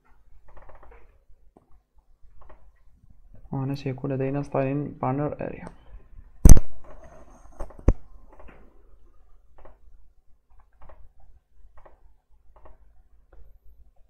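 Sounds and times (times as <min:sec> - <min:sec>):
keyboard keystrokes: 0:10.6 - 0:13.5.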